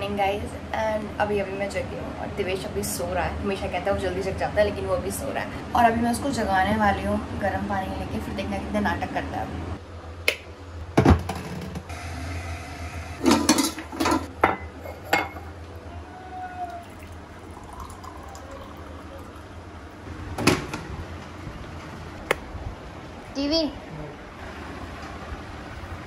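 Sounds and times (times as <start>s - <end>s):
hot water pouring into mug: 16.8s - 20.0s.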